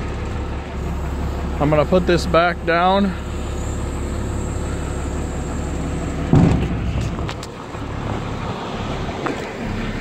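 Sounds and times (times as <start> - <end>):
diesel truck engine running: 0.0 - 10.0
heavy thump of dump body: 6.2 - 7.3.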